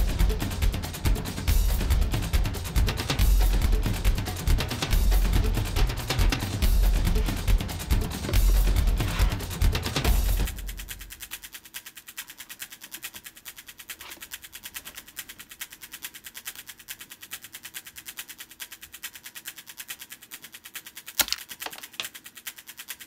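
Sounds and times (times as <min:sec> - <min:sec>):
rapid even ticking: 0:00.0 - 0:23.0
plastic hook snapping free: 0:21.2 - 0:22.1.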